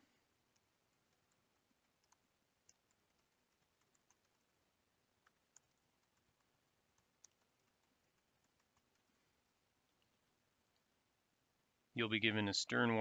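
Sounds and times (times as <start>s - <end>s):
keyboard keys typing: 0.4s - 9.2s.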